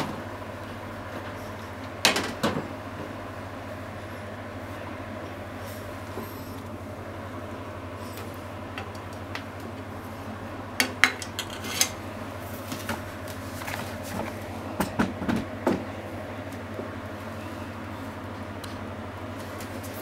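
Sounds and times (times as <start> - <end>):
steady low hum: 0.0 - 20.0
utensils clinking against pots: 10.8 - 12.0.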